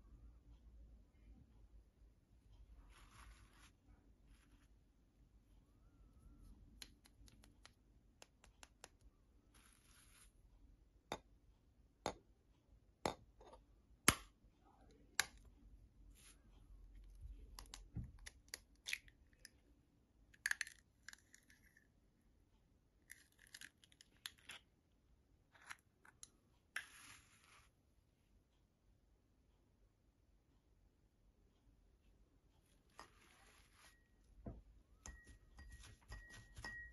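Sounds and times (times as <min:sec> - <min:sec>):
eggshell cracking and crackling: 0:20.4 - 0:21.9
eggshell tapping: 0:34.4 - 0:36.9.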